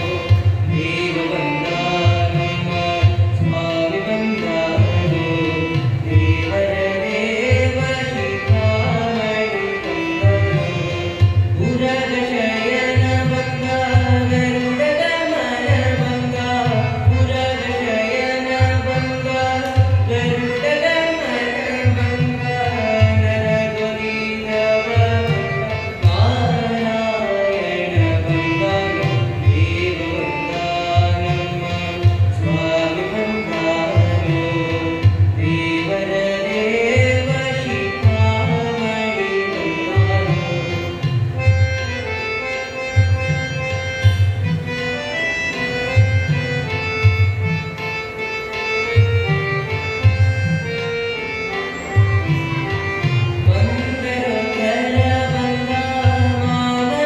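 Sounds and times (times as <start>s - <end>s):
young man singing devotional song: 0.0s - 47.9s, 48.6s - 57.0s
tabla beat: 0.0s - 57.0s
electronic keyboard: 36.2s - 57.0s.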